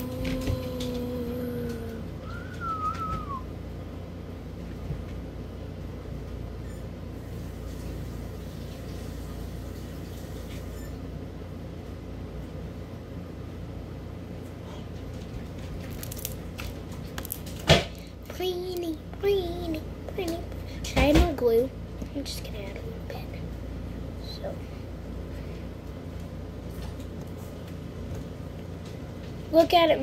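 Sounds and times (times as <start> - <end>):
ceiling fan humming: 0.0 - 30.0.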